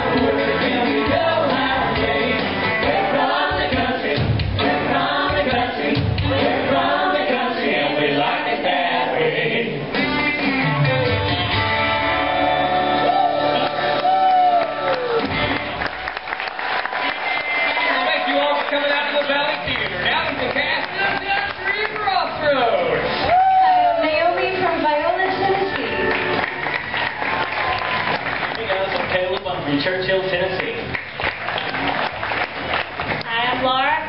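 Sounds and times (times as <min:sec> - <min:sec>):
voices singing together: 0:00.0 - 0:10.1
instrumental backing: 0:09.8 - 0:16.0.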